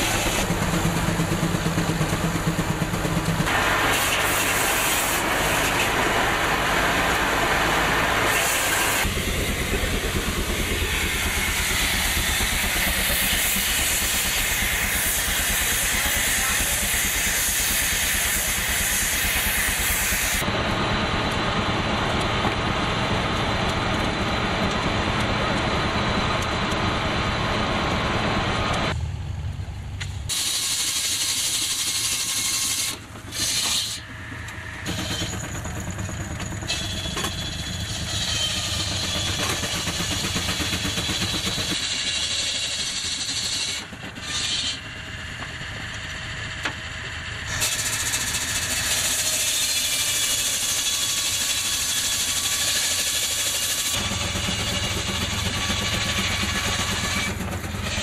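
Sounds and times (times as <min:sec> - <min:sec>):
steam engine and sawmill running: 0:00.0 - 0:58.0
steam hissing: 0:03.4 - 0:20.4, 0:30.3 - 0:35.3.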